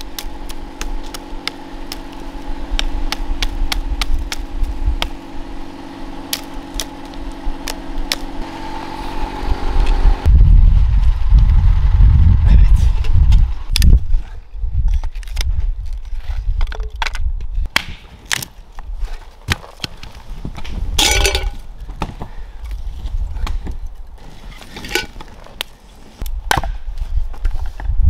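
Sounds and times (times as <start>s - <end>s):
hatchet chopping wood: 0.0s - 8.4s, 16.6s - 18.5s, 19.4s - 22.3s, 26.5s - 26.8s.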